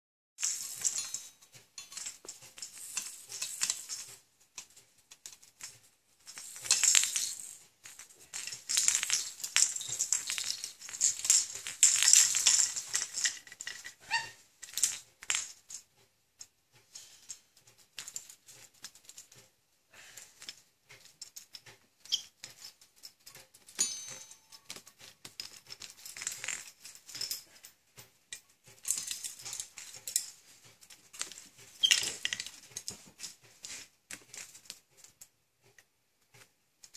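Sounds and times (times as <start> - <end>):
plastic toys rattling and clinking: 0.4 - 36.9.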